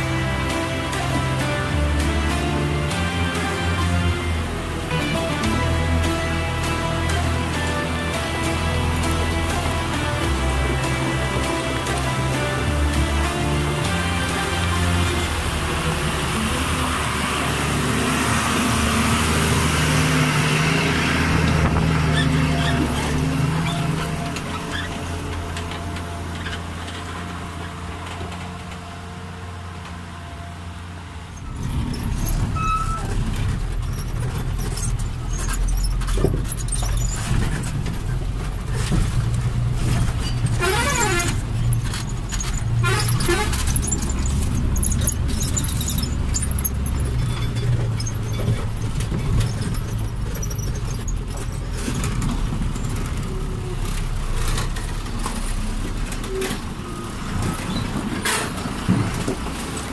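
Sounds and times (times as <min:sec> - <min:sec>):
truck engine drone: 0:00.0 - 0:59.9
warbling squeals: 0:31.4 - 0:37.6
truck body rattling: 0:31.4 - 0:59.9.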